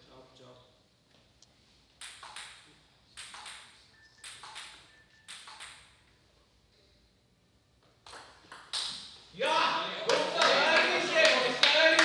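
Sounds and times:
table tennis ball hits: 2.0s - 2.6s, 3.2s - 6.0s, 8.0s - 9.2s.

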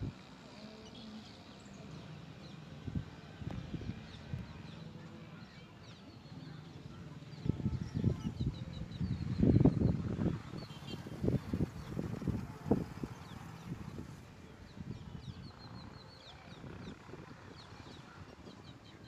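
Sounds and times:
birds chirping: 3.8s - 19.0s.

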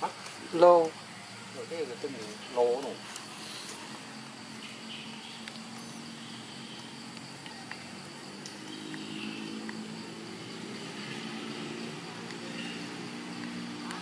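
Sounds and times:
distant motor engine humming: 0.0s - 14.0s
faint ticks: 6.6s - 9.8s.

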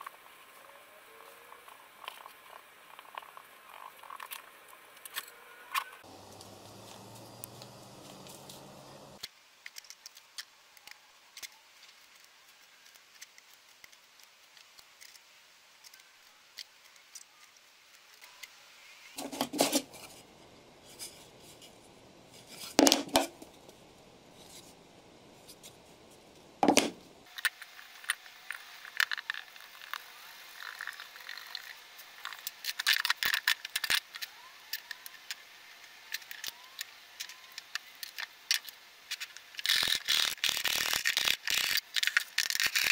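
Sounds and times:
wooden knocks: 26.6s - 27.0s.

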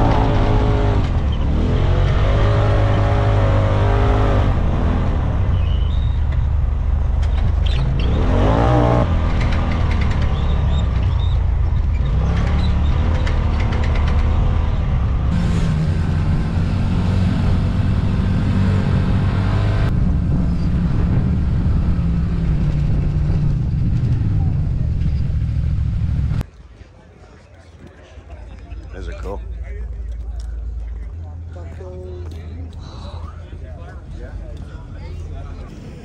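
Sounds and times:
vehicle engine running and revving: 0.0s - 26.4s.

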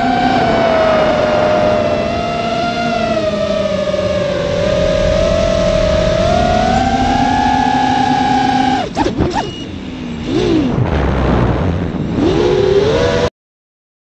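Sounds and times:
drone motors whining: 0.0s - 13.3s
wind rushing over microphone: 0.0s - 13.3s.

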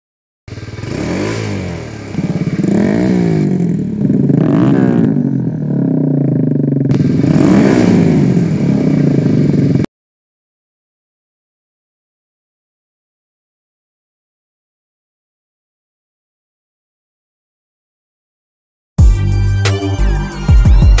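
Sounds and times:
motorcycle engine revving: 0.5s - 9.9s.

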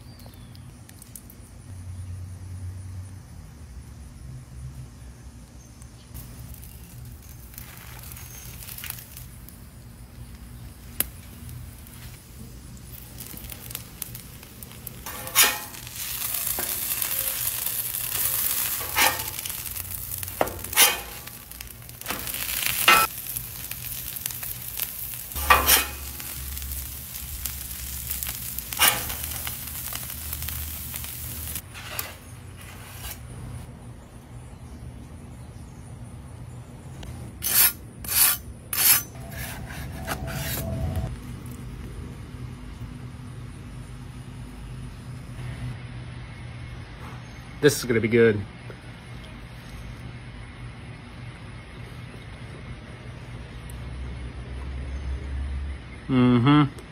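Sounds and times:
sandwiches sizzling on griddle: 6.2s - 33.2s
metal spatula scraping griddle: 15.0s - 24.0s, 24.7s - 31.1s, 37.4s - 41.1s.

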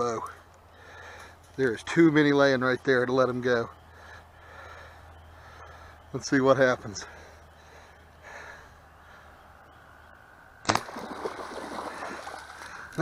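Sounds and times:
bow string crack: 10.6s - 13.0s
fish splashing in water: 10.6s - 13.0s.

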